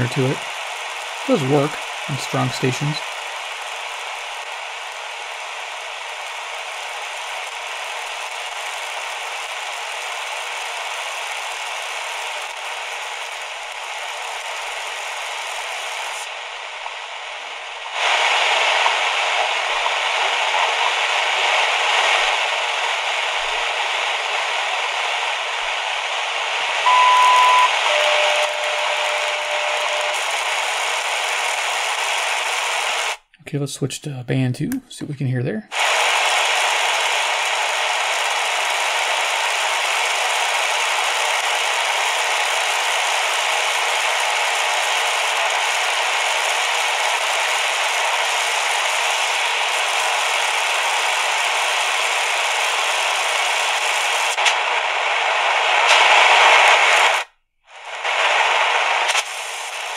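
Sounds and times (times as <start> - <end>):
shortwave radio static: 0.0 - 33.2, 35.7 - 59.9
radio whistles: 26.8 - 33.2.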